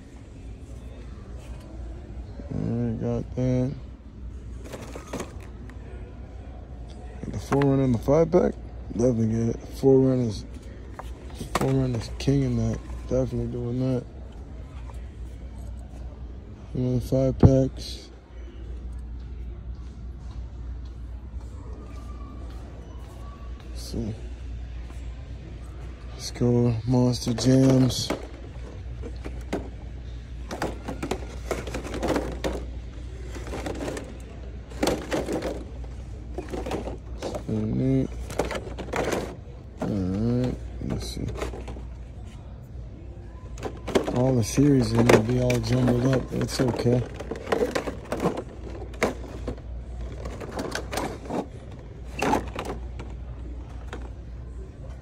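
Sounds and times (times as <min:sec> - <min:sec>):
plastic packages clacking and crinkling: 0:30.4 - 0:41.9, 0:43.6 - 0:54.1.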